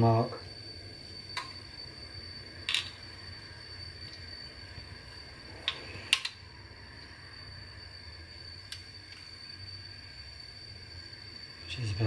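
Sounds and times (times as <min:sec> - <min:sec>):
faint steady hum: 0:00.0 - 0:12.0
thin high steady tone: 0:00.0 - 0:12.0.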